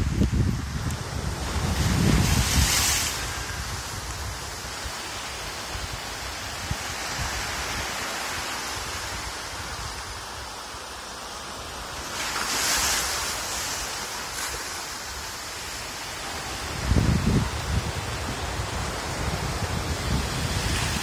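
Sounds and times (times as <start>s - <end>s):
sea waves on sandy beach: 0.0s - 21.0s.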